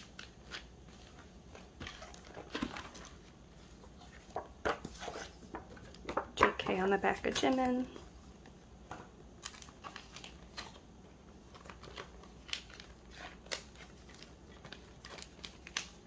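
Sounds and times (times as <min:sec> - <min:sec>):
plastic sleeves crinkling: 0:00.0 - 0:06.1, 0:09.4 - 0:16.0.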